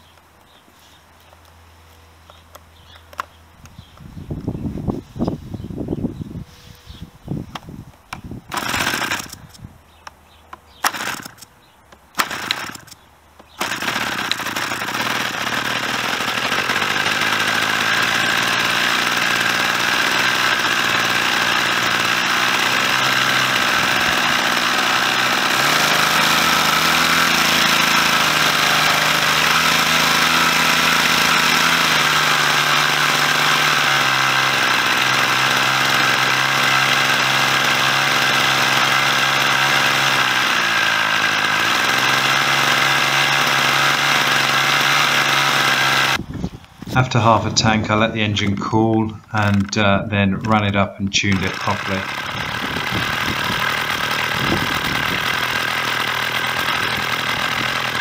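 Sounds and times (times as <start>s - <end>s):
model aircraft engine running: 8.5s - 9.6s, 10.8s - 11.5s, 12.2s - 46.2s, 49.4s - 58.0s.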